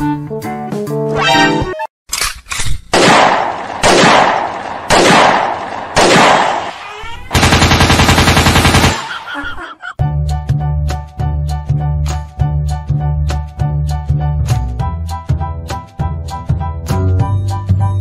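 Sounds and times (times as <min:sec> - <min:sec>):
single gunshots: 0:02.9 - 0:06.8
automatic gunfire burst: 0:03.0 - 0:06.7, 0:07.3 - 0:09.2.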